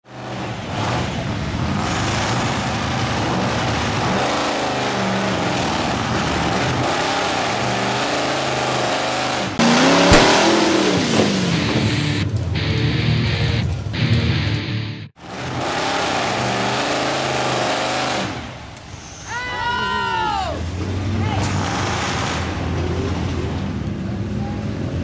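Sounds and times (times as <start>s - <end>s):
truck engine revving: 0.1s - 19.1s, 20.6s - 24.3s
mud smacking camera: 9.8s - 12.0s.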